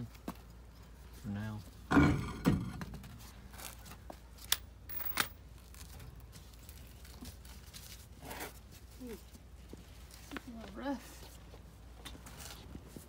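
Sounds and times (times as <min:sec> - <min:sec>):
metal knocks: 0:01.9 - 0:03.1.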